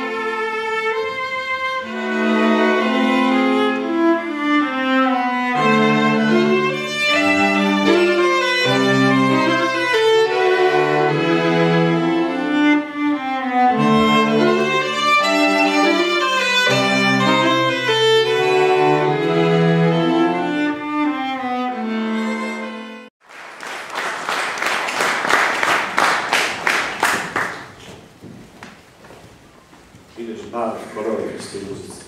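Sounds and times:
string ensemble bowed chords: 0:00.0 - 0:23.1
audience applause: 0:23.2 - 0:28.0.

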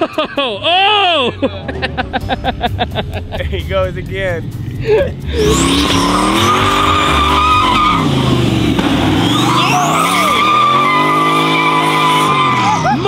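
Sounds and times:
car engine revving: 0:01.6 - 0:13.0
high tire squeal: 0:05.3 - 0:13.0.

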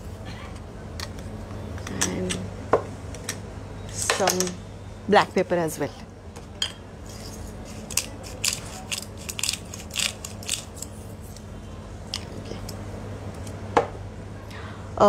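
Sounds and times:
pepper mill grinding: 0:07.1 - 0:11.4.

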